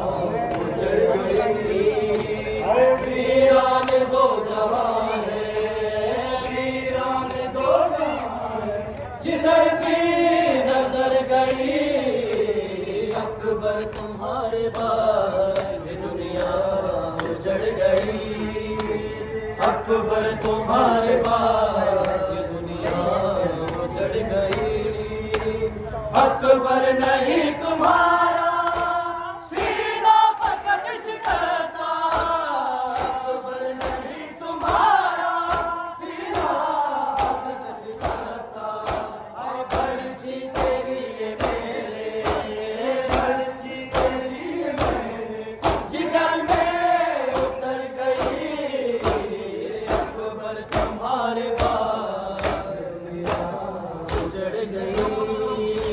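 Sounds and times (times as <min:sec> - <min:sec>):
men chanting a lament: 0:00.0 - 0:55.9.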